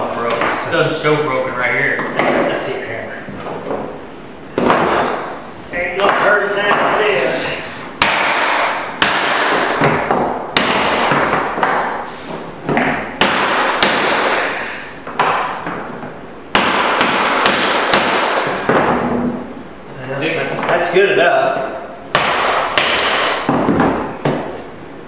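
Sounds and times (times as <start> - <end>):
hammer knocking on wooden block: 8.0 - 12.0, 12.7 - 14.3, 16.5 - 19.0, 22.1 - 24.5.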